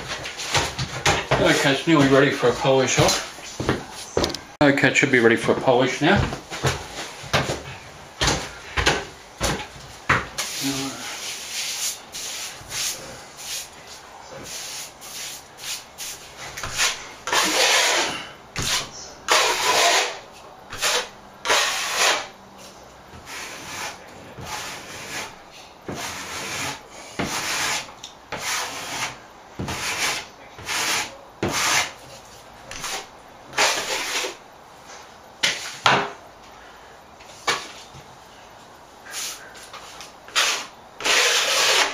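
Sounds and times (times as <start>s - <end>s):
sanding float rubbing plaster: 14.4s - 22.3s, 23.2s - 32.0s, 32.8s - 34.4s, 40.3s - 41.9s.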